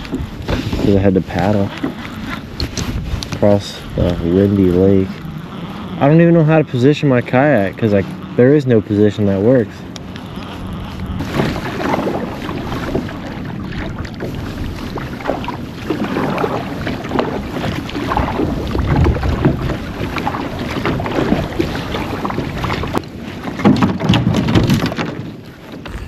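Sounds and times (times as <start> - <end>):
kayak paddle strokes in water: 0.0 - 26.0
water splashes: 0.0 - 26.0
wind buffeting microphone: 0.0 - 26.0.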